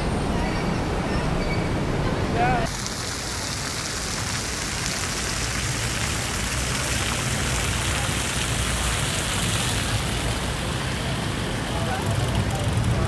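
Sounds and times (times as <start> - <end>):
low hum of city traffic: 0.0 - 13.0
fountain water jets splashing: 2.6 - 13.0.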